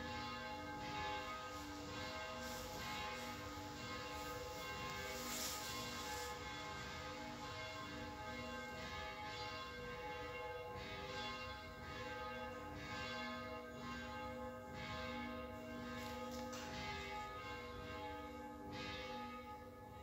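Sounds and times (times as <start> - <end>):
church bells ringing: 0.0 - 20.0.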